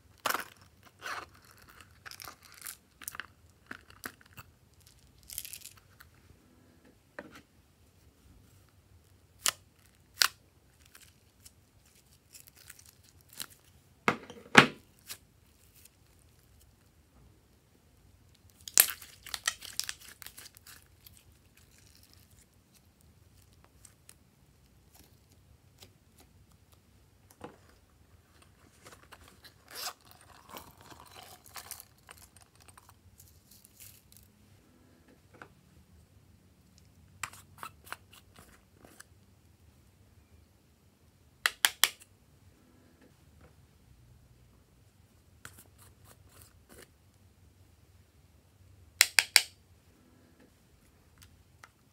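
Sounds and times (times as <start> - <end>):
crinkly plastic crackling: 9.4 - 13.8, 18.4 - 24.2.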